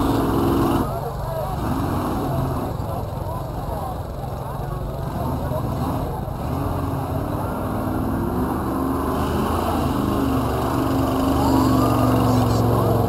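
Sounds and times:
off-road vehicle engine running: 0:00.0 - 0:13.0.

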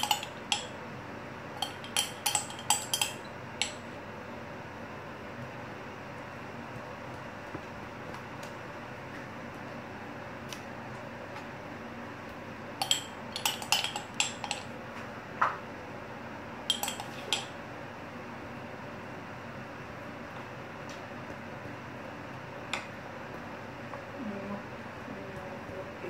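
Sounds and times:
metal spoon clinking on glass jar: 0:00.0 - 0:00.7, 0:01.6 - 0:03.3, 0:12.8 - 0:14.6, 0:16.7 - 0:17.5.

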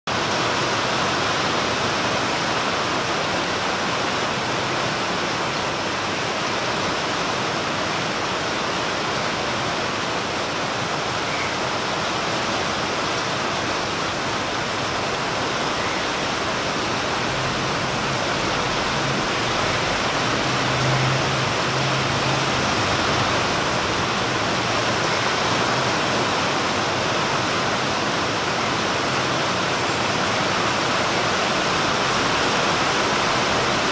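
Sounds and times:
rain falling on leafy trees: 0:00.1 - 0:33.9.

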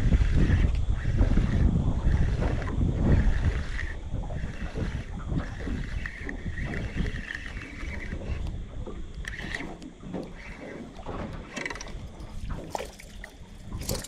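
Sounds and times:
wind buffeting microphone: 0:00.0 - 0:14.0
water washing around: 0:09.4 - 0:14.0.

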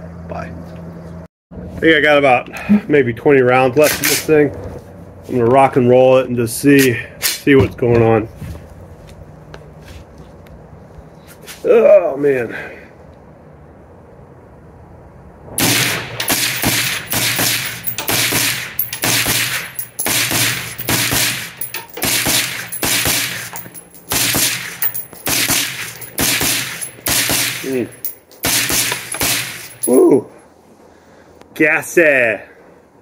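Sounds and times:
suppressed rifle rapid shots: 0:15.6 - 0:23.5, 0:24.1 - 0:27.7, 0:28.4 - 0:29.7.

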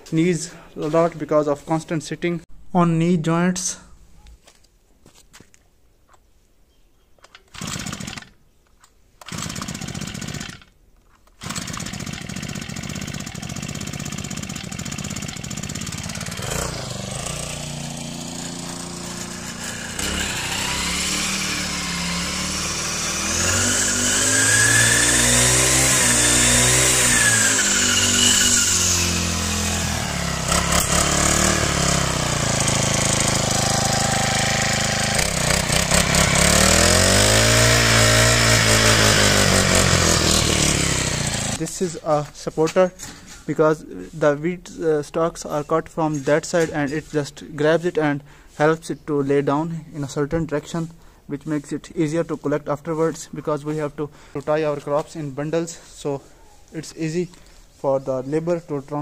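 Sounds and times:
starter cord pulls: 0:07.2 - 0:22.0, 0:30.1 - 0:41.8
brush cutter engine revving: 0:07.4 - 0:08.4, 0:09.2 - 0:42.8.

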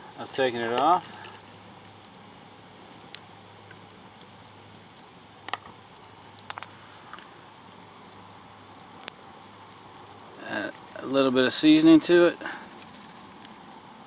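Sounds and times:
steady low hiss: 0:00.0 - 0:14.0
corn kernels popping: 0:03.0 - 0:08.3.

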